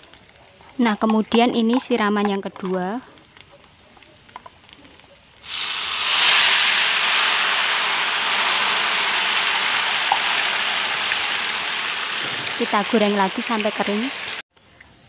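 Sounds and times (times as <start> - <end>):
batter sizzling in hot oil: 5.4 - 14.4.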